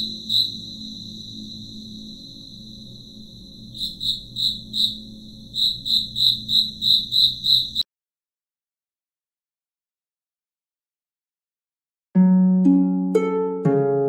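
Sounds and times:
insect chirps: 0.0 - 7.8
insect shrill trill: 0.0 - 7.8.

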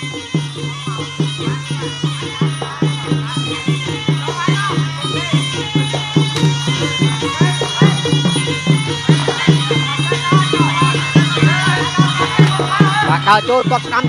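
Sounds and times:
fast steady drum beat: 0.0 - 14.0
reed pipe melody: 0.0 - 14.0.

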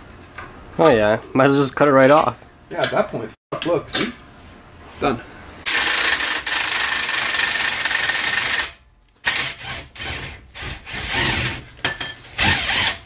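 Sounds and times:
impact wrench running: 5.6 - 11.6, 12.4 - 13.0.

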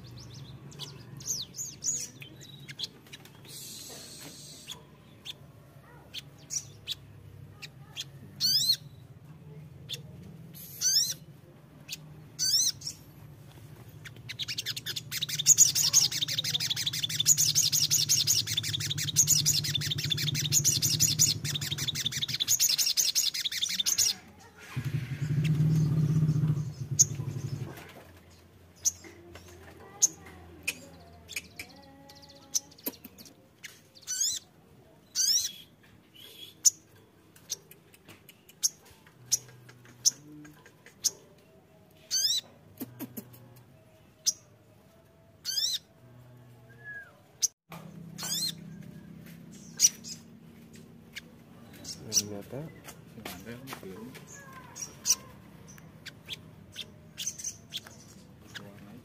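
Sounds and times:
bird chirping and trilling: 0.0 - 9.1, 9.8 - 11.3, 11.9 - 13.0, 14.0 - 27.8, 30.0 - 37.7, 42.0 - 42.5, 45.4 - 45.9, 47.4 - 52.9, 54.2 - 58.8.

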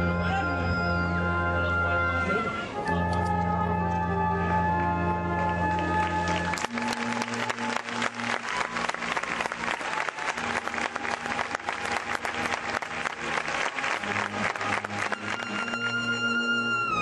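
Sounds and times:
low band tones: 0.0 - 9.5
crowd applauding: 5.4 - 17.0.

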